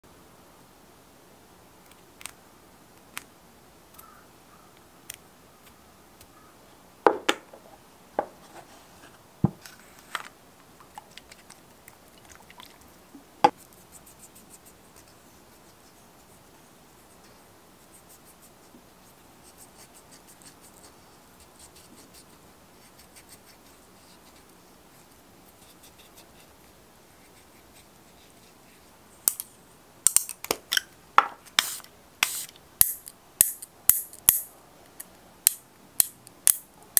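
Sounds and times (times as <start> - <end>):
sharp spray bursts: 31.6 - 32.5
nail tools tapping and clicking: 32.8 - 34.5.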